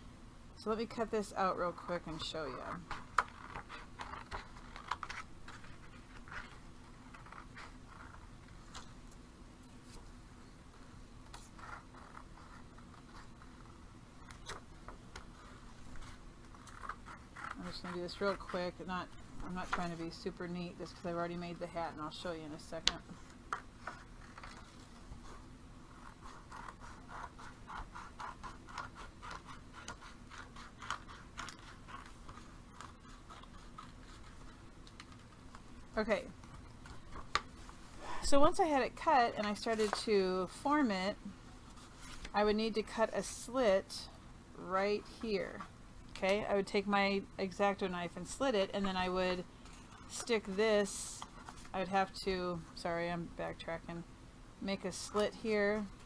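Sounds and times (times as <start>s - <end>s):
scissors cutting paper: 16.0s - 18.9s, 26.0s - 35.2s.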